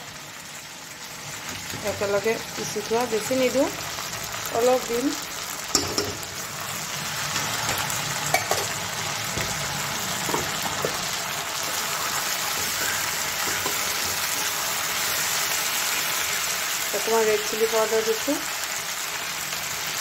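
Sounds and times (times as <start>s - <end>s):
fruit slices sizzling in oil: 0.0s - 20.0s
spatula scraping and knocking pan: 12.4s - 14.6s.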